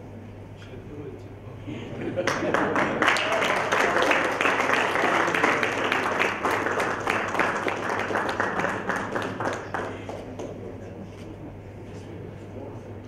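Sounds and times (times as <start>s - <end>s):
audience applauding: 2.1s - 10.8s.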